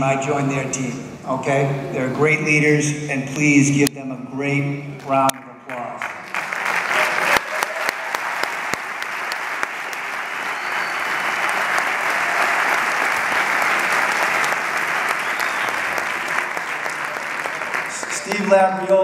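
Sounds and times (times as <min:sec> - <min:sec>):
large audience applauding: 0:05.9 - 0:19.0.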